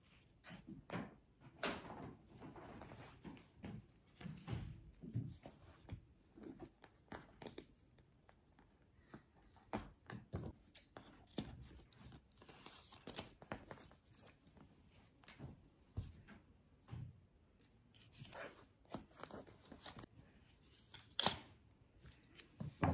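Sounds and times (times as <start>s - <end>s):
fabric and paper rustling: 10.3s - 16.3s, 17.9s - 21.3s.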